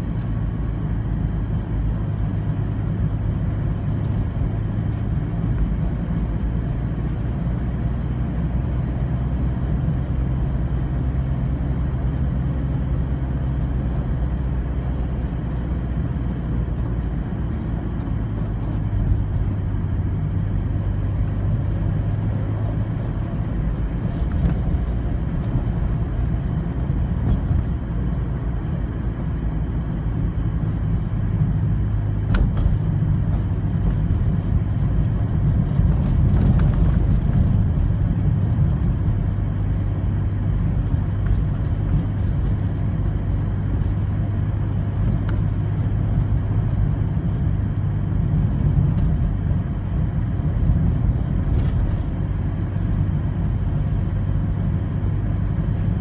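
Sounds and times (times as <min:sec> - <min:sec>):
car engine and road hum: 0:00.0 - 0:56.0.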